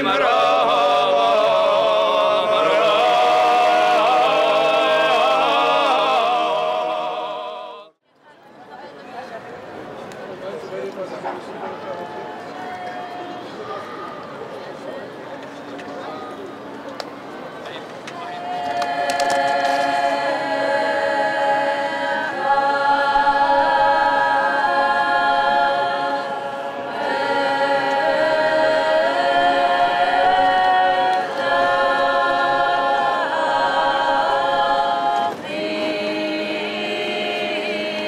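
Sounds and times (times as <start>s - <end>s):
women's choir singing a cappella: 0.0s - 8.0s, 18.4s - 38.0s.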